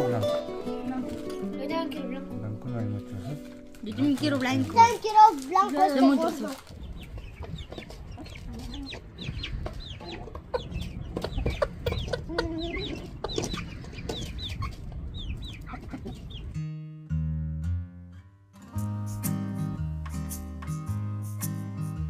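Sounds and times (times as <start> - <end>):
guitar music: 0.0 - 5.2, 16.5 - 22.0
chicks peeping: 6.4 - 16.6
hen clucking: 6.8 - 16.5.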